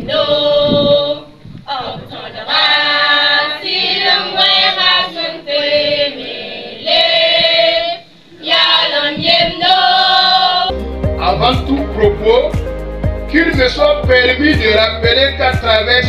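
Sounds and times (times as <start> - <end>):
children singing together: 0.0 - 10.7.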